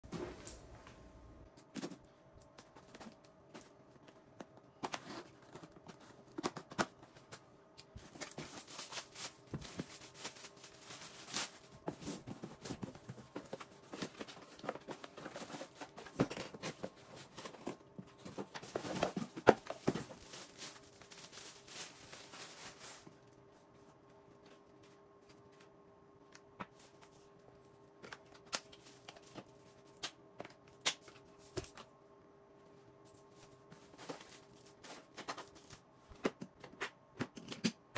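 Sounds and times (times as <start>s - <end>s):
plastic wrapping rustling: 7.9s - 23.4s, 33.3s - 35.9s
cardboard boxes handled: 8.0s - 23.1s.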